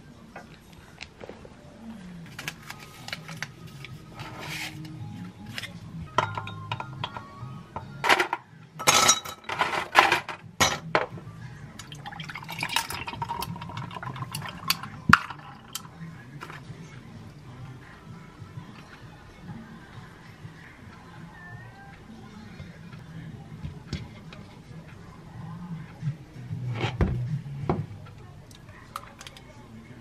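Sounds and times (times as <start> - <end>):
ice cubes clinking into glass: 11.8 - 15.8
milk pouring: 11.8 - 15.8.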